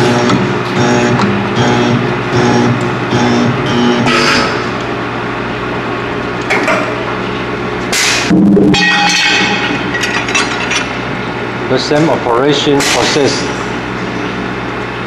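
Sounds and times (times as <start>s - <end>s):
loud welding buzz: 0.0s - 11.7s
electrical hum: 0.0s - 15.0s.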